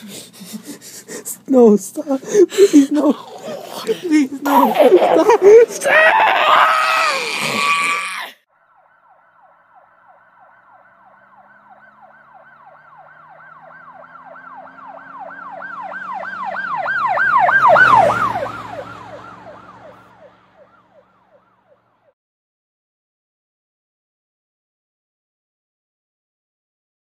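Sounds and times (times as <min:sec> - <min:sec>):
emergency siren yelping: 0:08.4 - 0:22.1.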